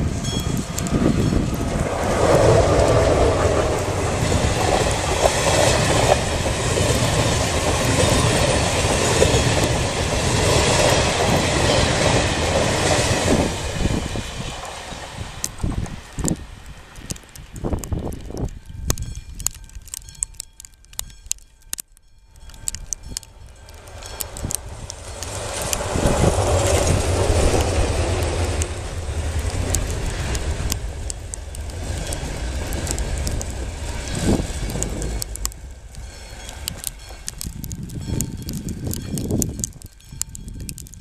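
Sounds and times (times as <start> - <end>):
passenger train rumbling past: 0.0 - 18.2, 23.3 - 40.0
train wheels clattering: 1.2 - 15.9.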